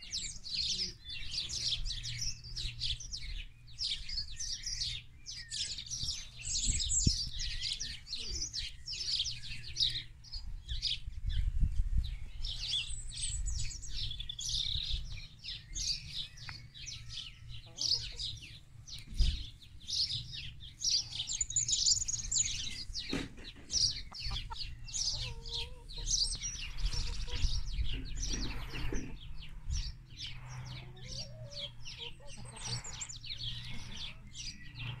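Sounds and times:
small birds chirping: 0:00.0 - 0:35.0
hens clucking: 0:21.9 - 0:35.0.

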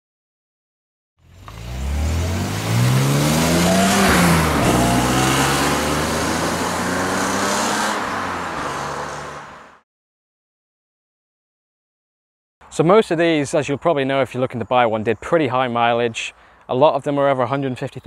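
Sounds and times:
car engine accelerating past: 0:01.3 - 0:09.8.

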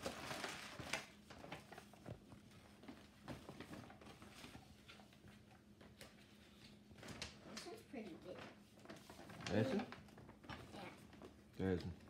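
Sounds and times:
packaging rustling: 0:00.0 - 0:05.1, 0:08.8 - 0:11.4.

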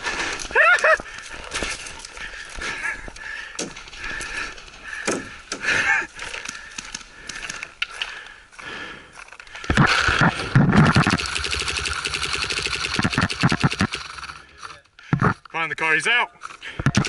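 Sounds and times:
paintball guns popping: 0:09.7 - 0:14.4.

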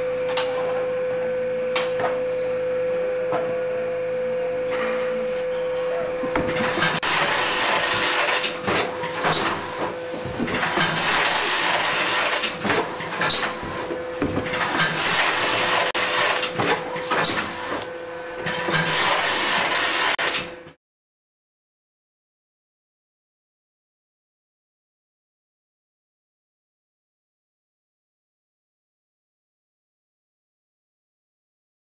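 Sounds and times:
steady machine hum: 0:00.0 - 0:18.5.

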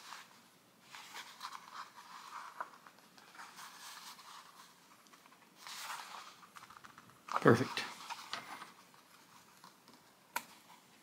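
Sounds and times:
thread scratching and rustling: 0:00.0 - 0:10.8.

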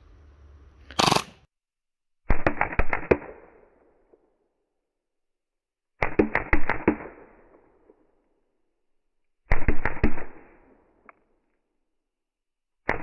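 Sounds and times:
airsoft pistol burst: 0:01.0 - 0:01.4.

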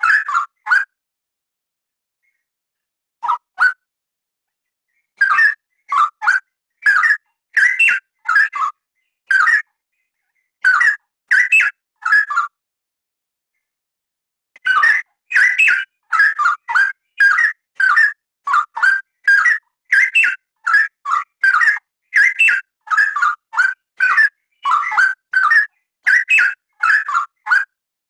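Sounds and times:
bulbul singing: 0:14.6 - 0:27.6.

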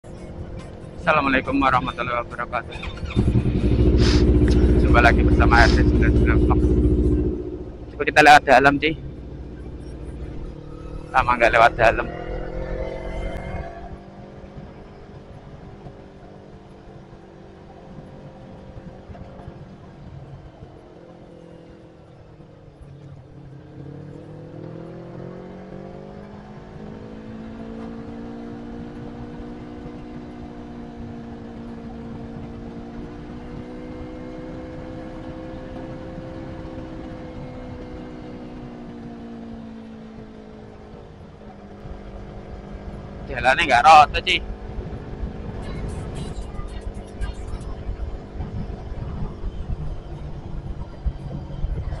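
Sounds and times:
motorcycle engine running: 0:00.0 - 0:52.0
wind and road noise: 0:00.0 - 0:52.0.

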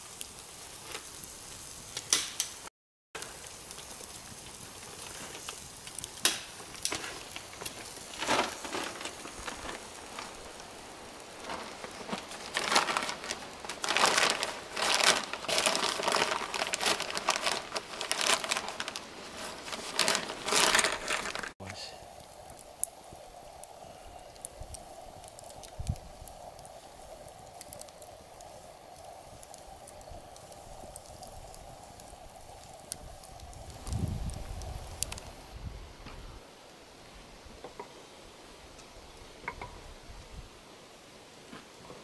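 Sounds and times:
wood fire crackling and popping: 0:00.0 - 0:36.2
rustling: 0:03.5 - 0:21.6.

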